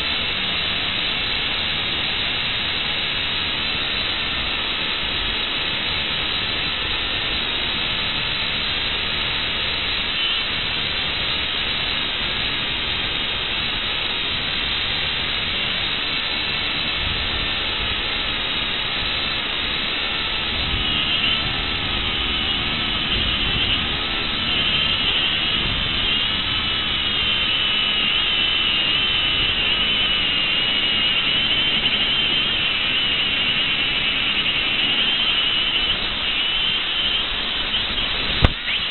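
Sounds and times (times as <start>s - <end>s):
rush of air: 0.0s - 38.9s
drone motors whining: 18.6s - 38.9s.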